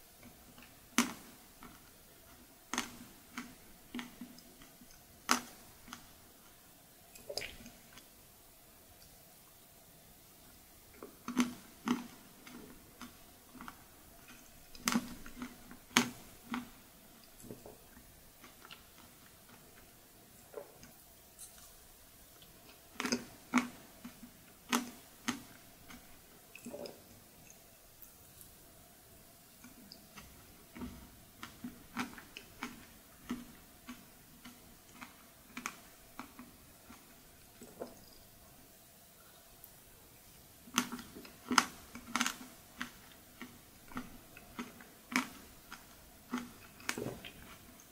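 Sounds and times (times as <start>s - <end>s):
mouth chewing wetly: 40.3s - 47.9s.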